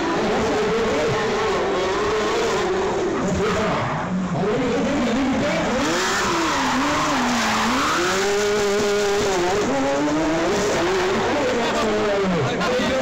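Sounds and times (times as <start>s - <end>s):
tyres skidding: 0.0s - 12.0s
car engine revving: 0.0s - 13.0s.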